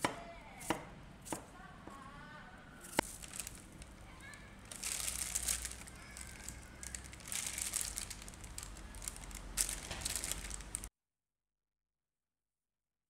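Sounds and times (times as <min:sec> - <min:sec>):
plastic bag and glove crinkling: 0:02.9 - 0:10.9.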